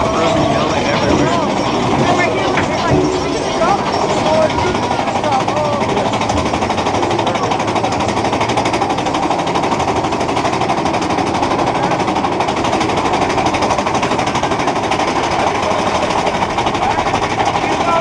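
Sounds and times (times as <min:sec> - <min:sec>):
roller coaster clattering on track: 0:00.0 - 0:18.0.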